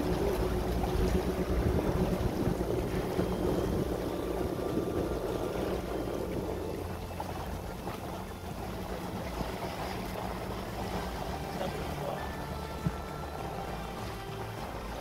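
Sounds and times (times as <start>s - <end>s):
wind noise: 0.0s - 7.1s
outboard motor running: 0.0s - 15.0s
water noise: 0.0s - 15.0s.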